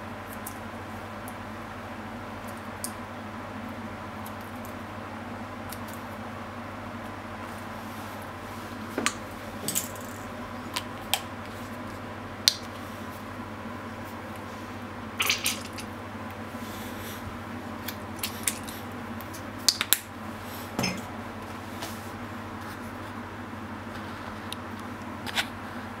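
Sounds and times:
steady low hum: 0:00.0 - 0:26.0
squeeze bottle clicks and squirts: 0:15.2 - 0:15.9.

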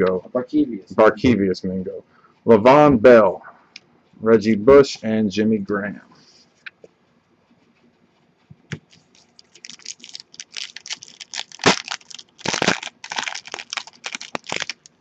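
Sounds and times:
foil wrapper crinkling and tearing: 0:08.9 - 0:15.0.

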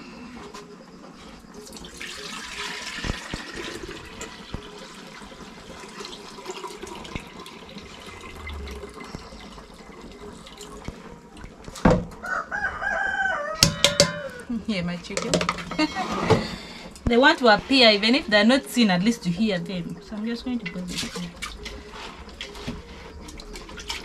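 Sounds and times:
water pouring and splashing: 0:01.6 - 0:12.2, 0:20.6 - 0:24.0
metal pot knocking down: 0:13.6 - 0:14.3, 0:15.1 - 0:16.4.

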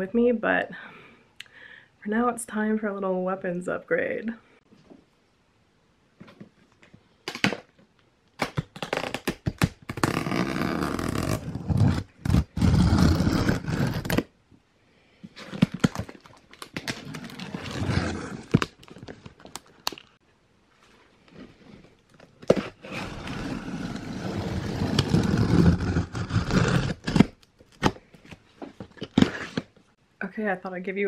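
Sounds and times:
tape tearing off cardboard: 0:08.4 - 0:14.3, 0:15.4 - 0:20.0, 0:22.4 - 0:28.0, 0:28.9 - 0:29.8.

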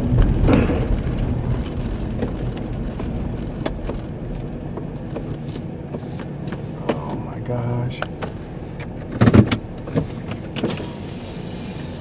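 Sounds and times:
raindrops ticking on car: 0:00.0 - 0:08.9
low vehicle rumble: 0:00.0 - 0:12.0.

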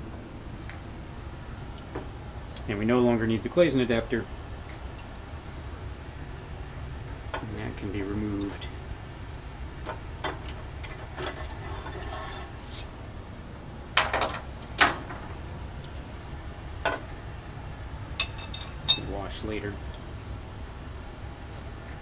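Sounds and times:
low room hum: 0:00.0 - 0:22.0
glassware and metal clamp clinking: 0:18.2 - 0:19.2.

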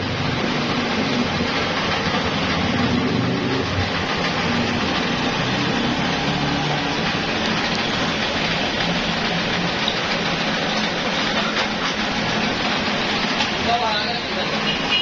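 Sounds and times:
machine humming: 0:00.0 - 0:15.0.

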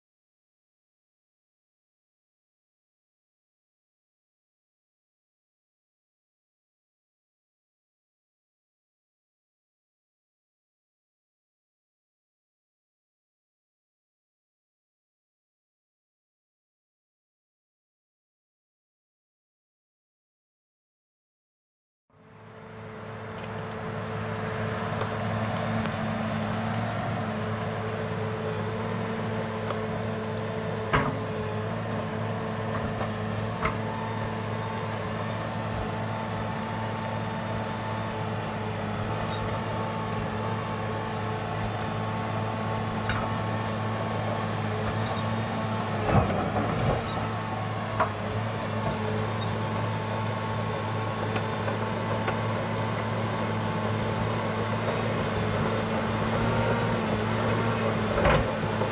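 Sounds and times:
diesel engine running: 0:22.2 - 0:58.9.

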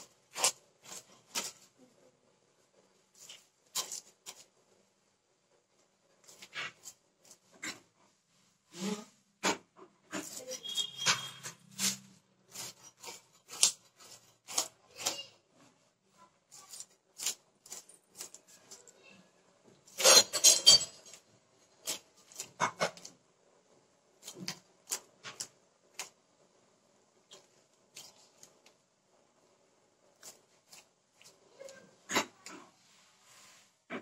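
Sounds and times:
blade scraping fish scales: 0:10.1 - 0:15.3.

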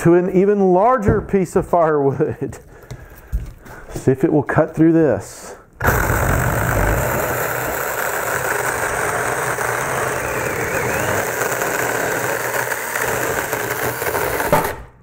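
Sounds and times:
electric chainsaw cutting log: 0:05.8 - 0:14.9.

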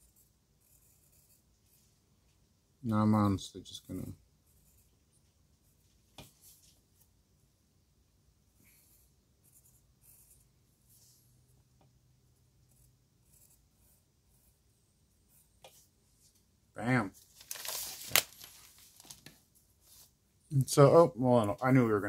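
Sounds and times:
pencil scratching on paper: 0:00.0 - 0:02.1, 0:04.4 - 0:06.8, 0:08.6 - 0:11.5, 0:12.3 - 0:16.3.

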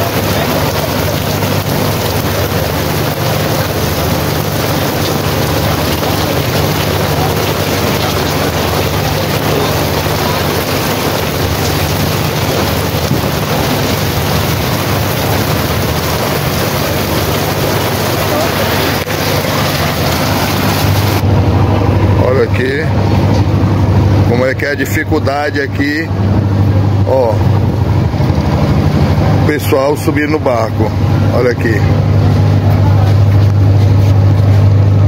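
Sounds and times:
steady rain: 0:00.0 - 0:22.2
low engine hum: 0:00.0 - 0:35.0.

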